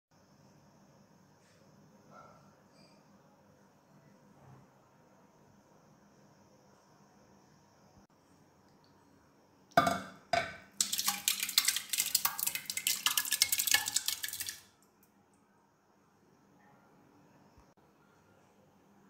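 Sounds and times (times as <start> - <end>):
steel bowl knocking on pot: 9.8 - 14.6
wet curd scraping and splattering: 10.8 - 14.7.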